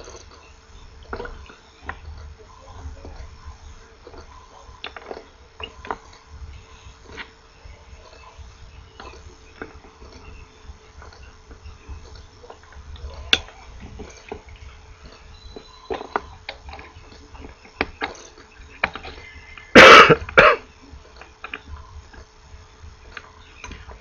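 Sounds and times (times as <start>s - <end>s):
person coughing: 19.7s - 20.7s.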